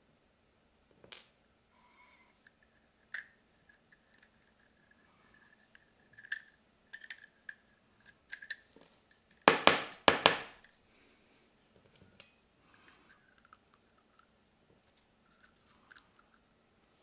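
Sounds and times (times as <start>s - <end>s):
small clicks of parts handled: 2.4s - 9.5s, 11.8s - 14.3s, 15.2s - 16.5s.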